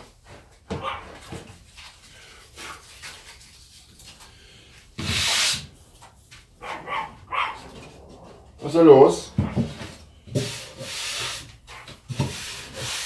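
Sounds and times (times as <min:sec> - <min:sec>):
sandpaper scratching on wood: 0:05.0 - 0:05.7, 0:10.3 - 0:13.0.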